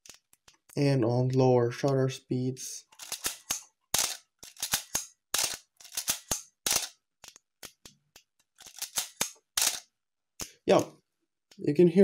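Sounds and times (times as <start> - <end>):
camera shutter clicks: 4.0 - 6.9, 8.8 - 9.8.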